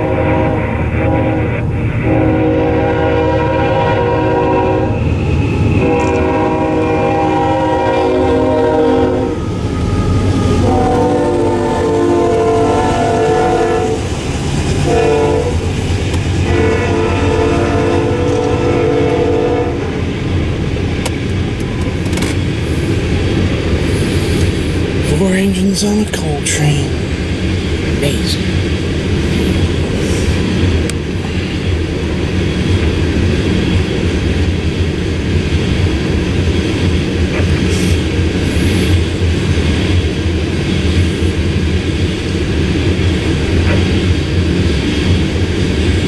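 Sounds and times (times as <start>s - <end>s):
locomotive air horn blasts: 0.0s - 5.0s, 5.8s - 14.0s, 14.8s - 15.6s, 16.4s - 19.8s
train wheels rumbling: 0.0s - 46.0s.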